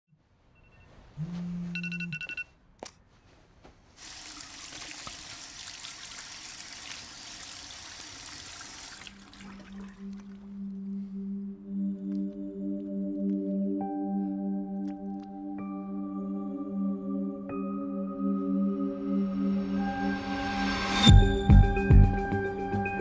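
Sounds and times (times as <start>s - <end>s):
tap water running over hands: 4.0s - 10.4s.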